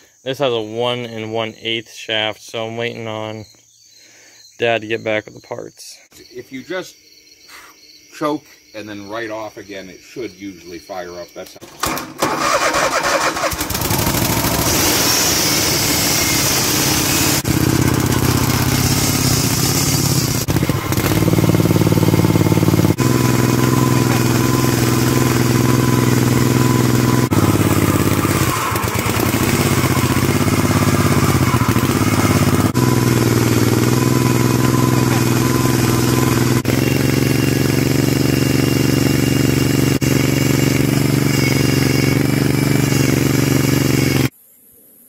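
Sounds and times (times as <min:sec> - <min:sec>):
engine running steadily: 0:13.3 - 0:44.3.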